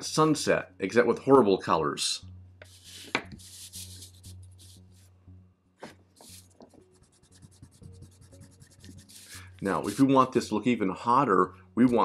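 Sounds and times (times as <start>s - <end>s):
paper scraping and rustling: 2.7s - 4.8s, 6.2s - 6.6s, 8.8s - 10.2s.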